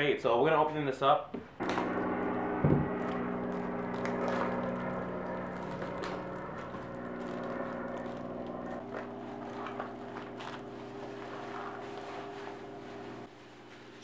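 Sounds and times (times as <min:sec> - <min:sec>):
steady background tones: 0:01.6 - 0:13.3
cardboard package tearing: 0:02.9 - 0:12.6
wrapping rustling: 0:03.0 - 0:14.0.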